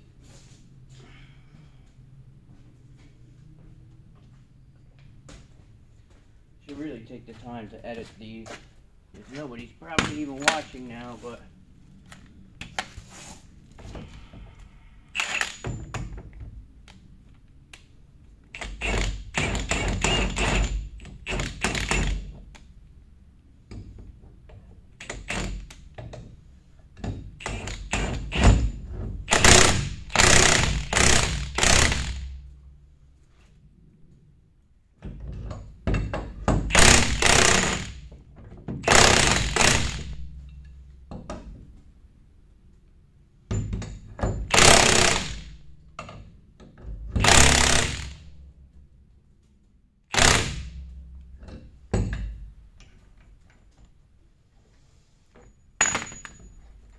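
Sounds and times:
power tool running: 29.3 - 32.3, 36.7 - 38.0, 38.8 - 40.2, 44.5 - 45.5, 47.2 - 48.2, 50.1 - 50.7.

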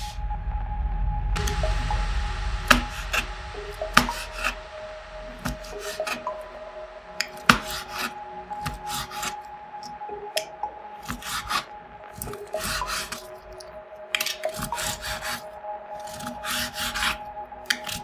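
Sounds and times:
knife sawing through slime: 11.0 - 11.7, 14.5 - 15.4, 16.1 - 17.2.

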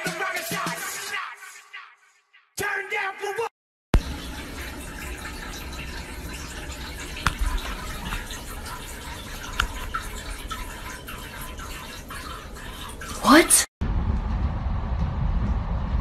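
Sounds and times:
cat urinating into toilet water: 4.0 - 13.7.

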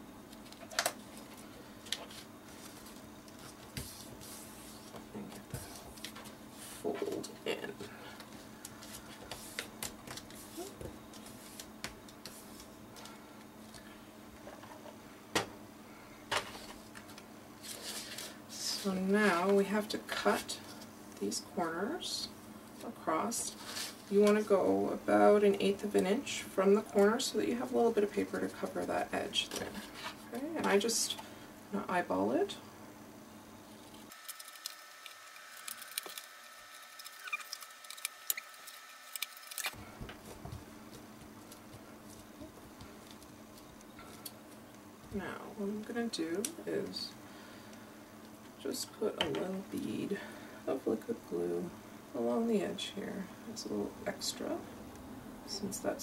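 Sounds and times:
faint steady hum: 0.0 - 56.0
paper rustling: 34.0 - 44.3.

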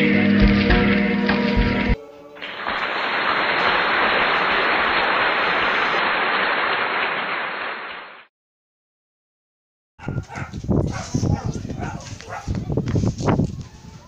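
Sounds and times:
steady static hiss: 2.4 - 5.9.

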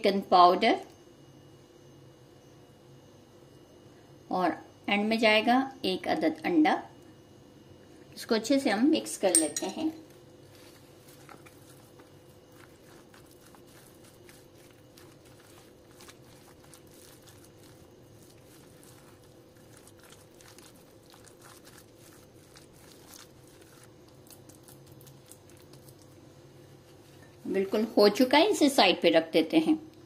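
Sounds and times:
spatula mixing food in a bowl: 9.3 - 28.1.

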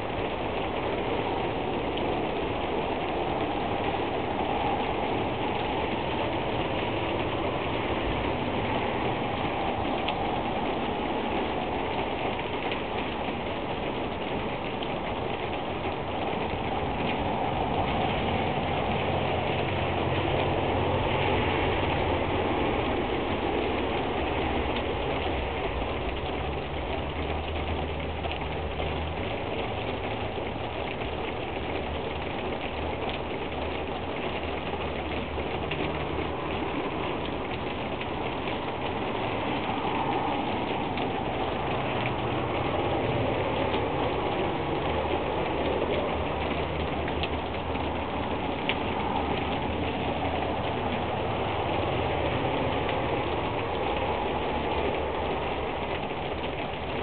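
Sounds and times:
steady rain falling: 0.0 - 57.0.

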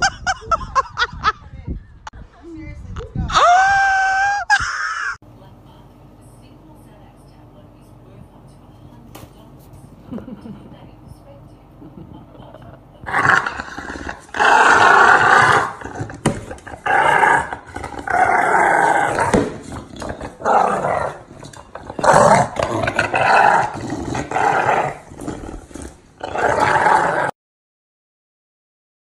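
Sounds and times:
dog growling: 13.0 - 27.3.

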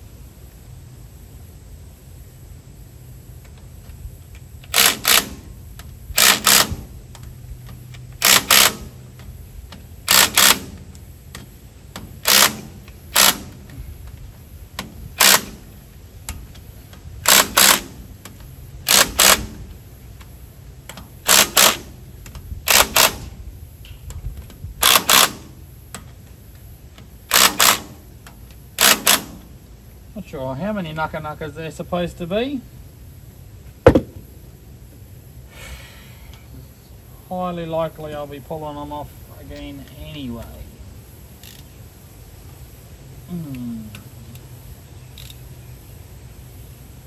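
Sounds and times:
impact wrench hammering in bursts: 4.7 - 13.8, 14.8 - 19.7, 20.9 - 22.1, 22.7 - 23.4, 24.8 - 26.1, 27.3 - 28.1, 28.8 - 29.5, 33.9 - 34.4.

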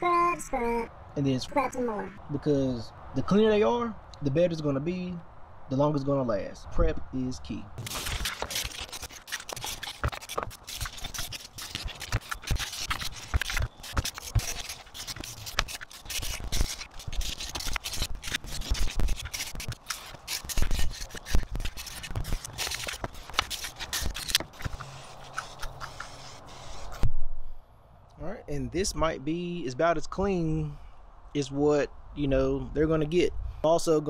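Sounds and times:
wire brush scraping metal: 7.8 - 27.0.

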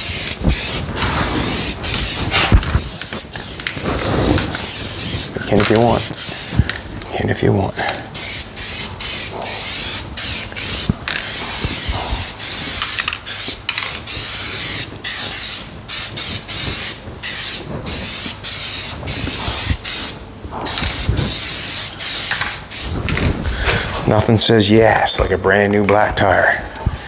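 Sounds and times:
aerosol spray can hissing: 0.0 - 6.7, 8.1 - 23.0.

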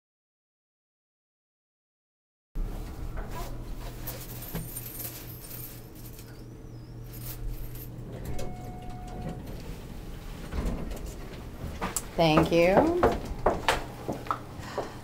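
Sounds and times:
low steady hum: 2.6 - 15.0
rustling and clicking of handling: 2.7 - 6.5, 7.1 - 14.5.

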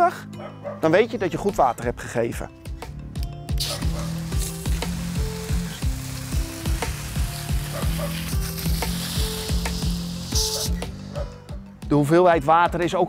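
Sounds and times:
background music with beat: 1.3 - 13.0
hose water jet hissing: 3.5 - 11.5.

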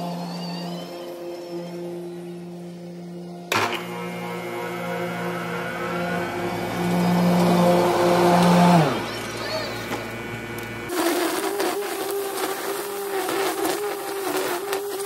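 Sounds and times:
electric mower whirring: 3.4 - 15.0.

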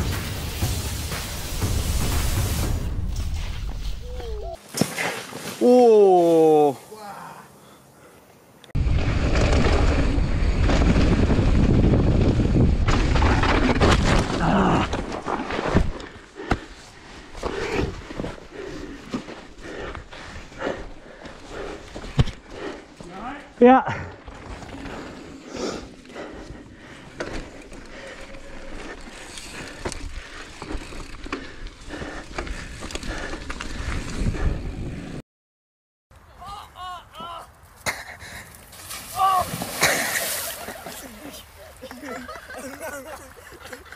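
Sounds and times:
bike tyres on dirt: 0.0 - 7.4, 8.7 - 35.2, 36.2 - 43.9
wind rushing over microphone: 8.8 - 13.4
bike rattling: 8.8 - 16.3, 21.8 - 35.0.

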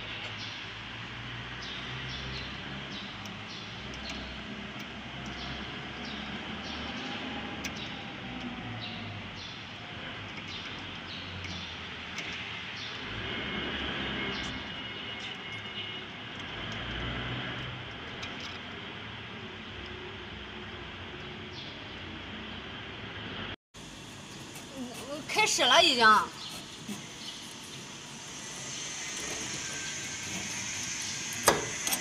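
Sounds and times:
workshop machinery noise: 0.0 - 32.0
small metal parts clicking: 1.8 - 13.1, 14.3 - 21.4.

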